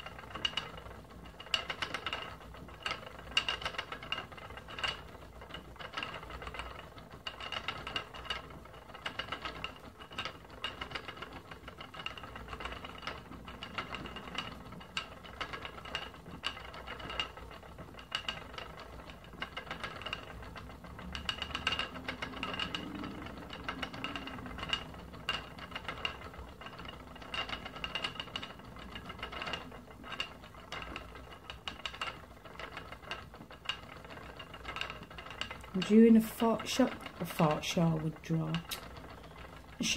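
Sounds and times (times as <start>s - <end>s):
spinning wheel clicking and rattling: 0.0s - 39.9s.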